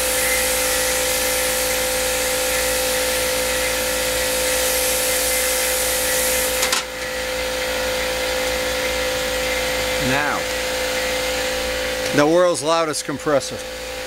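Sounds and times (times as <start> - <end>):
compressed air hissing: 0.0 - 6.8
air compressor humming: 0.0 - 14.0.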